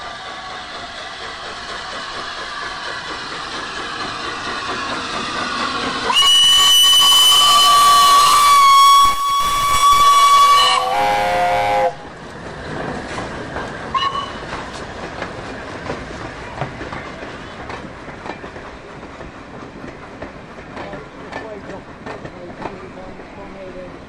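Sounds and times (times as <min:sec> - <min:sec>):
train wheels clattering over rails: 0:00.0 - 0:09.0, 0:09.6 - 0:24.0
locomotive whistle: 0:06.1 - 0:12.1, 0:13.9 - 0:14.4.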